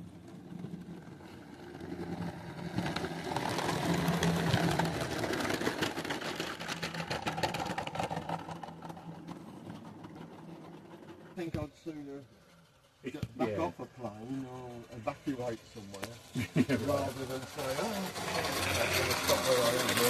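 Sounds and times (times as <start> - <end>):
miniature train running past: 0.0 - 20.0.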